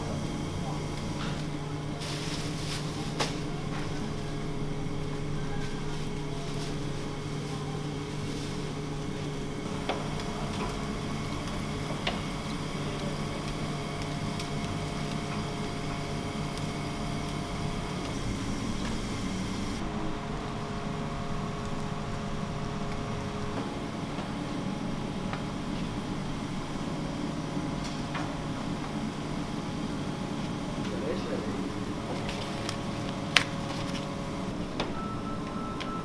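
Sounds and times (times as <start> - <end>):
kitchen equipment humming: 0.0 - 36.0.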